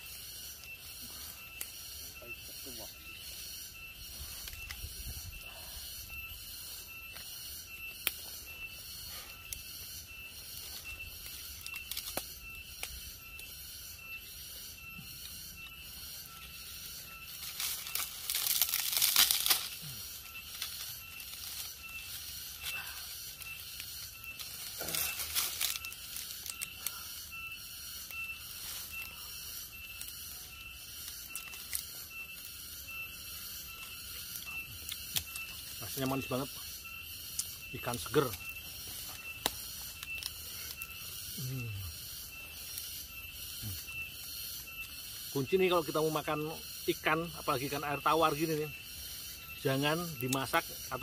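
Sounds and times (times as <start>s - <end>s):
pulsing high-pitched background: 0.0s - 51.0s
dry leaves rustling and crackling: 17.3s - 22.8s, 23.8s - 27.0s.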